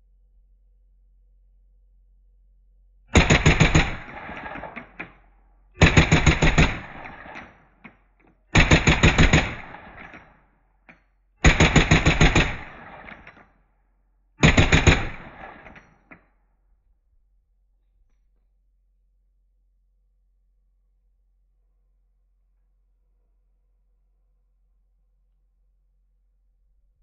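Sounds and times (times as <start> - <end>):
suppressed automatic rifle bursts: 3.2 - 5.2, 5.8 - 7.6, 8.6 - 10.3, 11.4 - 13.4, 14.4 - 16.0.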